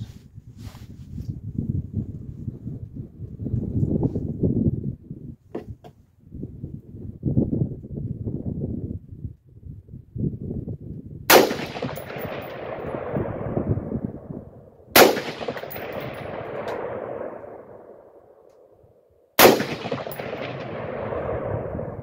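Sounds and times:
rifle shots with echo: 11.3 - 18.7, 19.4 - 22.0.

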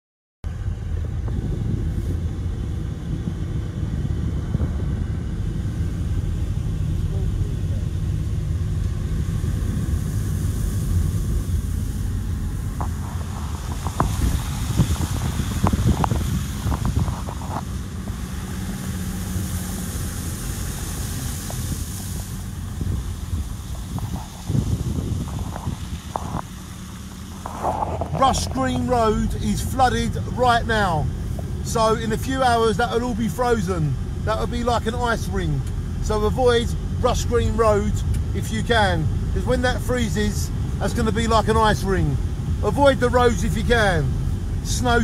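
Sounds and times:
vehicle engine rumble: 0.4 - 45.0
car driving on wet road: 0.5 - 45.0
wind on microphone: 0.6 - 26.6, 27.2 - 28.8
tyres splashing through slush: 5.9 - 45.0.

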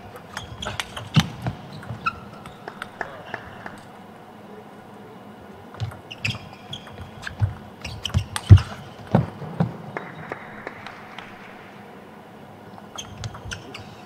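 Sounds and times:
shoe squeaks on floor: 0.3 - 2.8, 5.8 - 9.1, 12.9 - 14.0.

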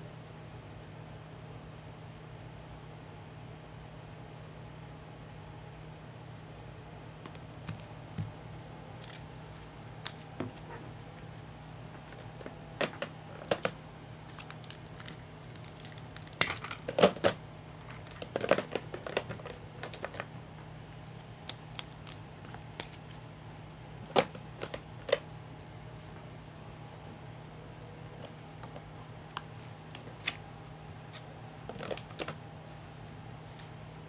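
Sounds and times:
card pack wrappers crinkling: 9.0 - 10.7, 12.0 - 20.3, 21.0 - 23.2, 24.1 - 25.2, 28.2 - 32.4
cards tapping and clicking: 9.0 - 11.3, 12.0 - 20.3, 21.1 - 23.2, 24.1 - 25.2, 28.2 - 32.4
wrapper tearing: 13.4 - 20.3, 21.2 - 23.2, 28.6 - 32.4.

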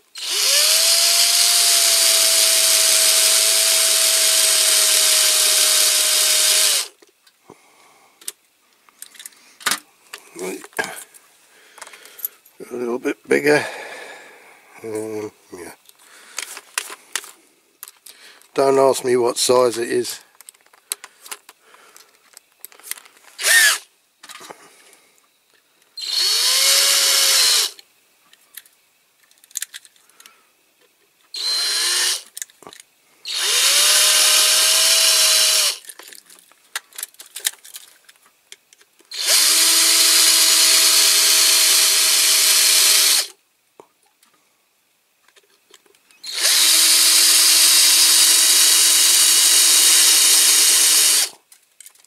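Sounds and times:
cordless drill whining: 0.1 - 6.9, 23.4 - 23.9, 26.0 - 27.8, 31.3 - 32.3, 33.2 - 35.8, 39.1 - 43.3, 46.2 - 51.4.

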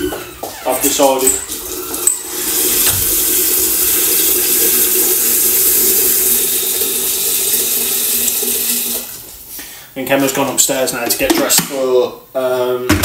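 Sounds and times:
tap water running: 0.0 - 9.6.

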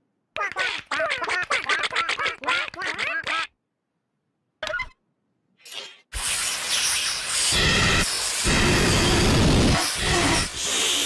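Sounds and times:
toy birds squawking: 0.4 - 3.6.

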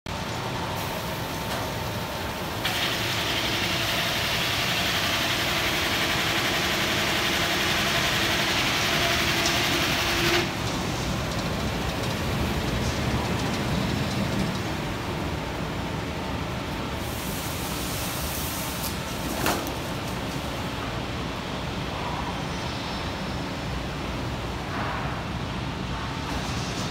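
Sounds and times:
woodworking machinery din: 2.6 - 14.7
loud hiss: 17.0 - 19.0.

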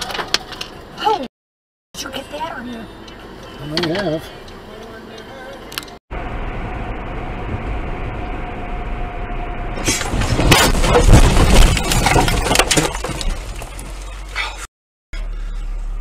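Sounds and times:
car cabin road noise: 2.0 - 11.3
car crash impacts and crunching: 9.8 - 14.4.

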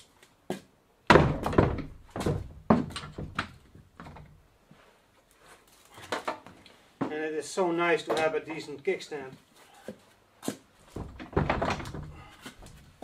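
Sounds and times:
wooden door knocking and rattling: 1.1 - 4.4, 10.8 - 12.9.

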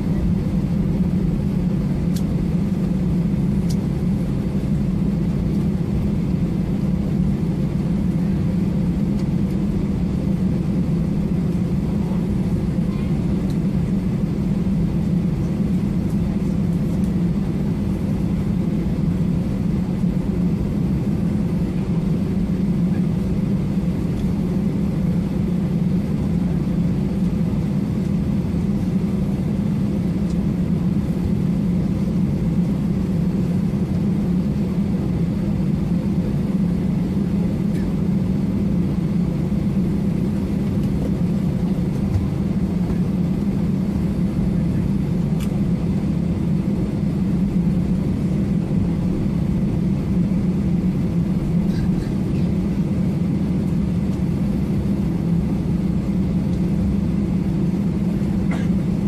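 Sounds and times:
jet engines rumbling in cabin: 0.0 - 59.0.

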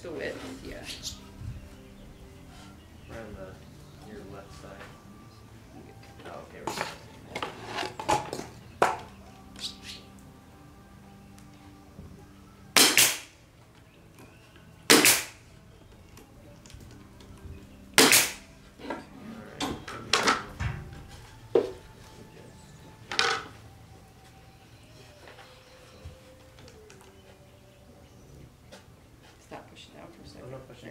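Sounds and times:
pneumatic stapler firing: 12.8 - 13.3, 14.9 - 15.4, 18.0 - 18.4.

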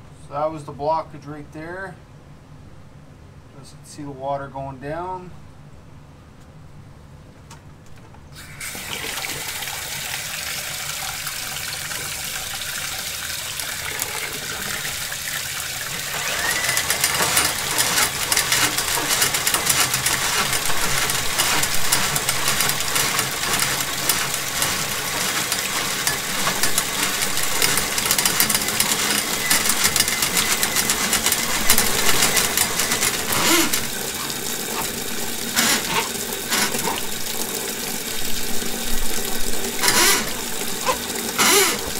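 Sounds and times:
faucet water pouring into tub: 8.4 - 41.9.

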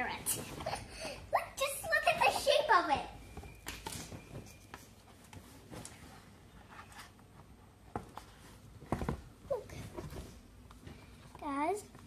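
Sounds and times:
picture book rustling and tapping: 3.3 - 12.0.

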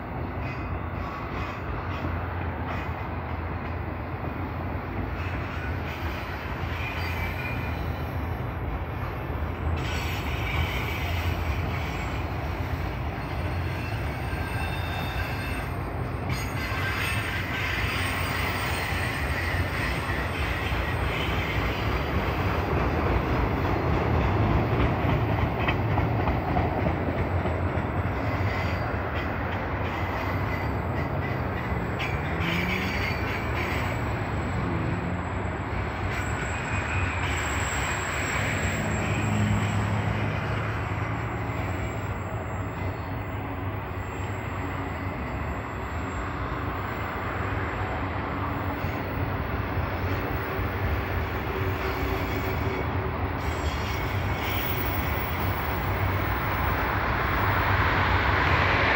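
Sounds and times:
faint high wheel squeal: 5.2 - 8.6, 9.6 - 22.5, 29.8 - 49.3, 50.0 - 57.4
steel wheels rumbling over track: 5.4 - 58.9.

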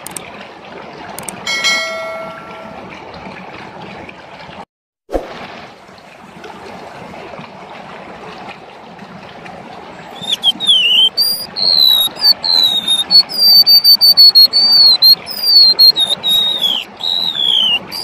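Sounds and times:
bird singing whistled notes: 10.2 - 18.0.

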